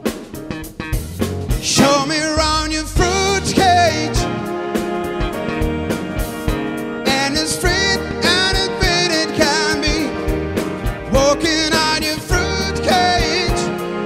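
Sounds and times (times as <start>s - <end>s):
big band playing: 0.0s - 14.0s
man singing with vibrato: 1.6s - 4.5s, 7.0s - 10.3s, 11.0s - 14.0s.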